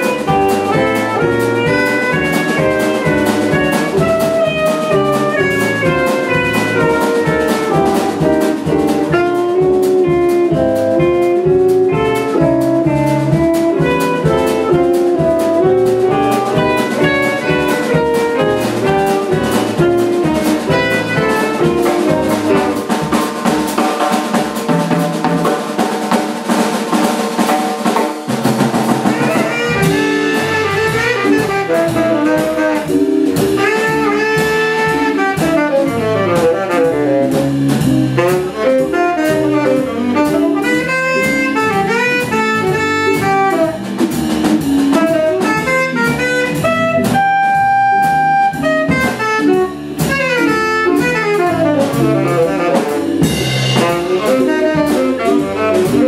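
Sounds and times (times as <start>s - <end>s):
saxophone: 0.0s - 23.6s, 29.0s - 56.0s
bass: 0.0s - 56.0s
drum kit: 0.0s - 56.0s.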